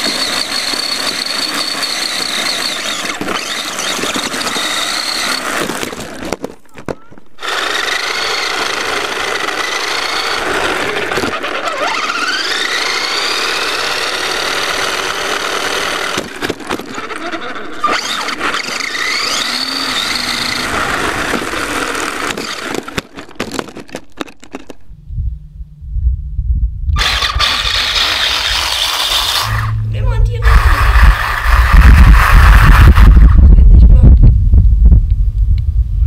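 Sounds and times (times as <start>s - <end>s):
rc buggy motor whining: 0.0s - 24.6s, 27.0s - 33.6s
rattling over tarmac: 0.0s - 25.7s, 26.9s - 35.8s
buggy crashing knocks: 20.7s - 24.8s
low rumble: 24.8s - 28.2s, 29.1s - 36.0s.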